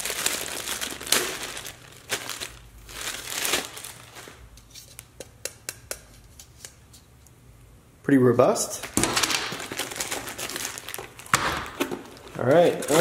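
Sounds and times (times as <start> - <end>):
plastic bag crinkling: 0.0 - 4.5, 8.8 - 13.0.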